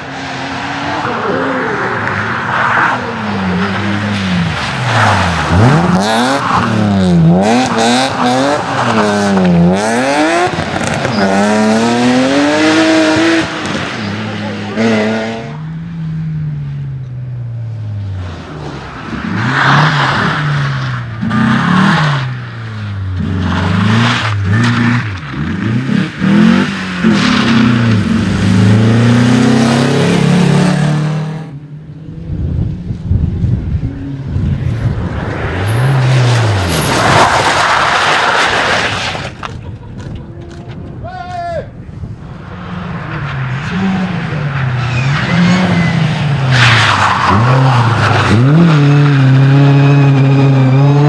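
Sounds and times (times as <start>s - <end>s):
rally car engine revving: 0.0s - 16.8s, 18.0s - 40.6s, 42.4s - 51.0s
tyre and track noise: 32.6s - 41.6s.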